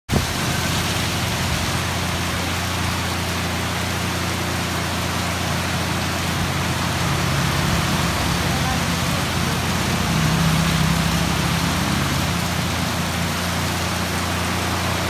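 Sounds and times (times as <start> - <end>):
strong wind: 0.1 - 3.0
heavy rain: 0.1 - 15.0.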